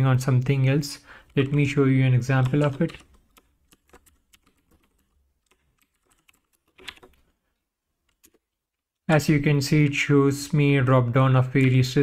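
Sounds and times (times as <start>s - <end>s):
typing on computer keyboard: 2.3s - 7.2s, 8.1s - 8.4s.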